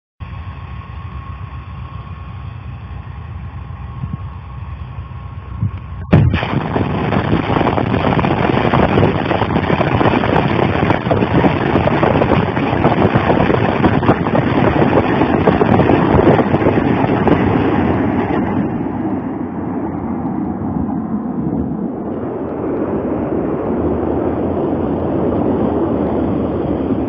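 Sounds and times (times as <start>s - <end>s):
rockets launching: 6.0s - 27.0s.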